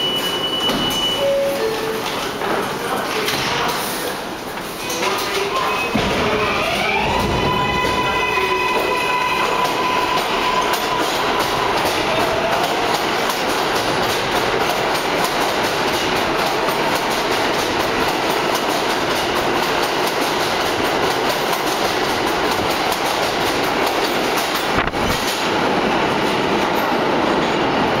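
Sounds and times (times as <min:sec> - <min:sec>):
subway train rumbling past: 0:00.0 - 0:28.0
wheels clattering over rails: 0:06.0 - 0:25.6.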